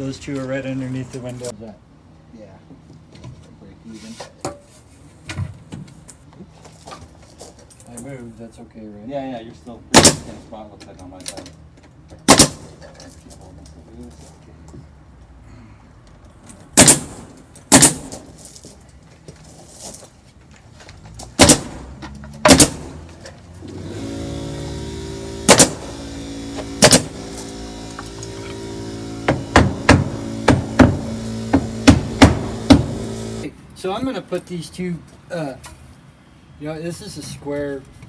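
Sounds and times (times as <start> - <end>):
pneumatic nailer shots: 9.9 - 10.4, 12.2 - 12.8, 16.8 - 18.4, 21.3 - 33.5
hammer blows on wood trim: 21.4 - 33.5
steady mechanical hum: 22.6 - 33.7.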